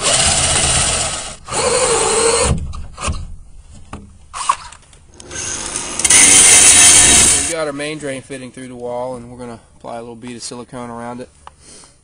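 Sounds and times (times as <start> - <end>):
drill cutting with hole saw: 0.0 - 2.5, 5.2 - 7.6
grinder on fiberglass: 5.2 - 7.7.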